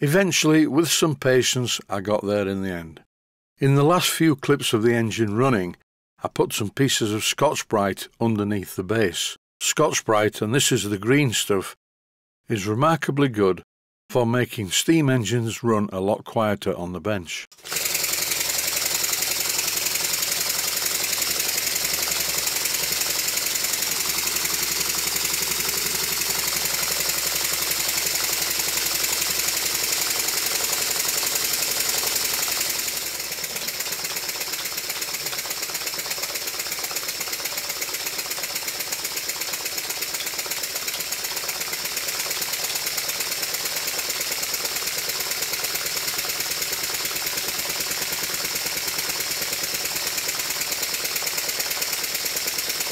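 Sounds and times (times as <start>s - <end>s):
model steam engine clattering: 17.7s - 52.9s.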